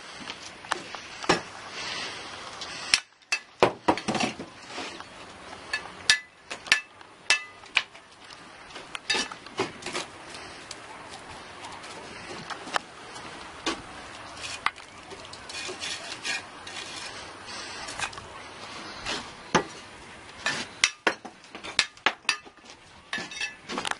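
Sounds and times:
trowel clinking and tapping bricks: 0:02.9 - 0:04.5, 0:05.7 - 0:08.0, 0:09.0 - 0:10.0, 0:20.4 - 0:23.9
trowel scraping mortar: 0:14.2 - 0:19.7, 0:20.4 - 0:21.0.

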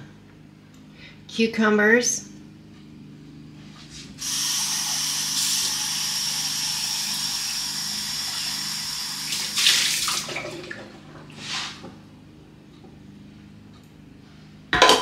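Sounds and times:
kitchen faucet running: 0:04.2 - 0:11.4
water splashing: 0:09.3 - 0:11.8.

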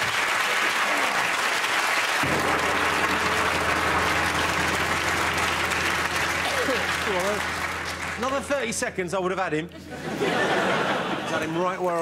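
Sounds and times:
audience applauding: 0:00.0 - 0:08.7
low steady hum: 0:02.2 - 0:10.0.

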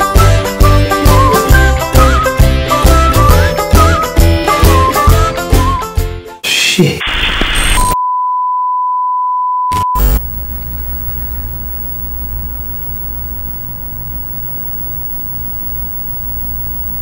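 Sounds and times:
tv static: 0:07.0 - 0:08.0, 0:09.7 - 0:17.0
low steady hum: 0:10.0 - 0:17.0
faint hiss: 0:10.1 - 0:17.0.

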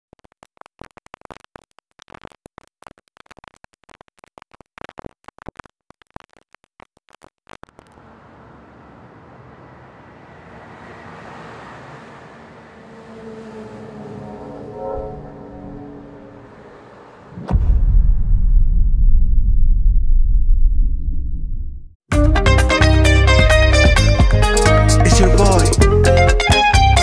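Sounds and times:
crackling clicks: 0:00.0 - 0:08.1.

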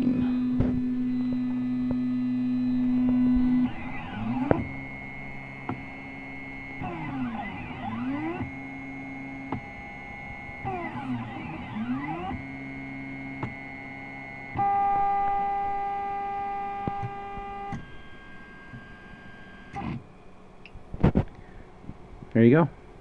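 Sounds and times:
stepper motors whining: 0:00.0 - 0:20.0
steady low hum: 0:00.0 - 0:23.0.

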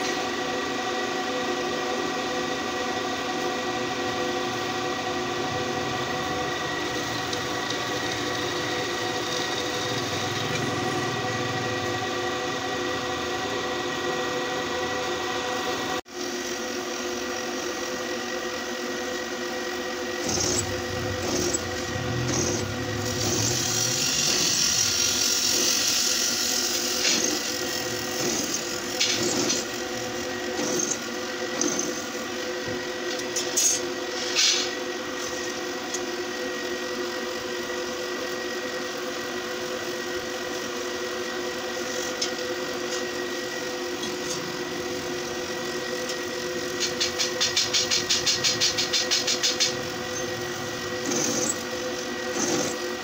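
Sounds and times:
drill press motor running: 0:00.0 - 0:53.0
drill bit scraping steel: 0:20.2 - 0:32.1, 0:46.8 - 0:53.0.

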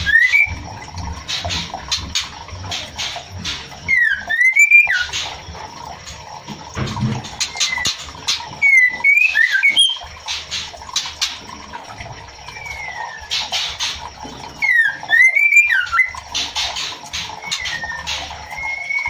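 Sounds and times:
bird clicking and whistling: 0:00.0 - 0:00.6, 0:01.3 - 0:05.3, 0:07.4 - 0:11.3, 0:14.6 - 0:19.0
falling bird whistle: 0:03.9 - 0:05.1, 0:08.6 - 0:10.0, 0:14.6 - 0:16.1, 0:17.4 - 0:19.0.

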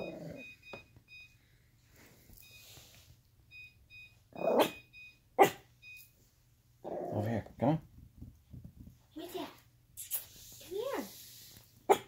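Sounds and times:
small dog barking: 0:04.4 - 0:04.8, 0:05.4 - 0:05.7.

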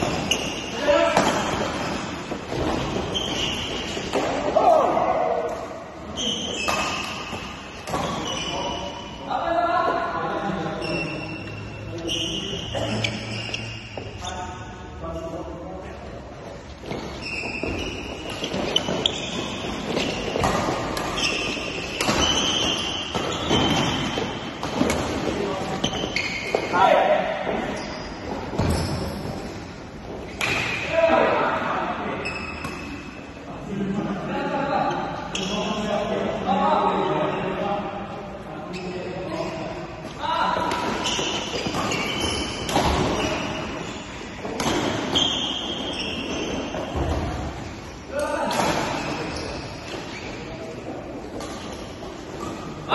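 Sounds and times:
shoes squealing on court floor: 0:00.0 - 0:05.0, 0:06.0 - 0:09.2, 0:10.8 - 0:14.8, 0:16.8 - 0:30.9, 0:32.2 - 0:33.2, 0:35.2 - 0:35.9, 0:38.7 - 0:39.8, 0:40.5 - 0:52.9
players' footwork on court: 0:16.4 - 0:30.4
rackets hitting shuttlecock: 0:18.3 - 0:25.4.

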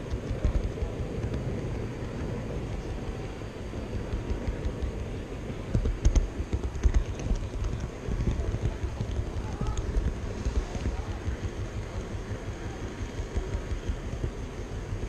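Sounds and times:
model train wheels rumbling: 0:00.0 - 0:15.0
wheels clicking over rail gaps: 0:00.0 - 0:15.0.

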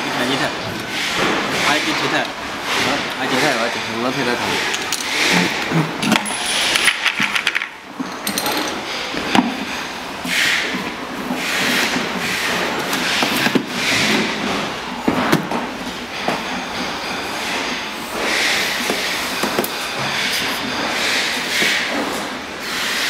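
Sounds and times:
clicks and clinks: 0:06.0 - 0:08.8.

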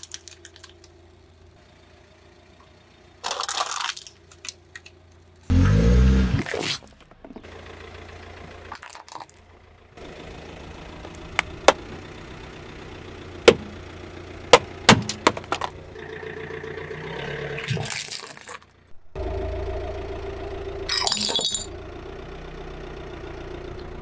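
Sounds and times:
car engine idling: 0:00.0 - 0:06.1, 0:06.9 - 0:17.7, 0:18.6 - 0:24.0
plastic box cracking under tyre: 0:14.6 - 0:15.8.

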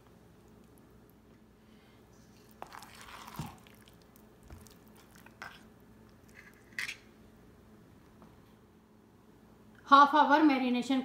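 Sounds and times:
spoon squelching through marinade: 0:02.2 - 0:06.8.

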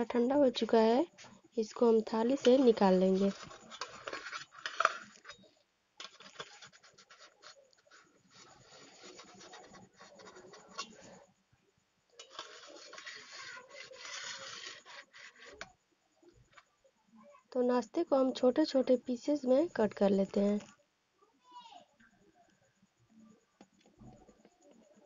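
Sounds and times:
metal spatula scraping steel plate: 0:02.3 - 0:05.4, 0:06.0 - 0:11.2, 0:12.2 - 0:15.6.

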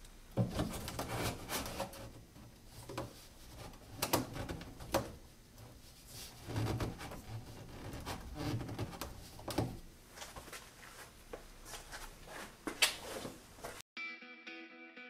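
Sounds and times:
plastic fittings rubbing: 0:00.4 - 0:02.2, 0:06.1 - 0:09.8.

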